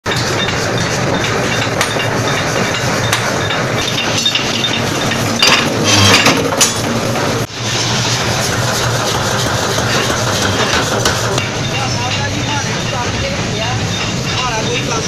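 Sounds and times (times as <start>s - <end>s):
metallic clinks: 0.1s - 6.3s
forge machinery din: 0.1s - 14.9s.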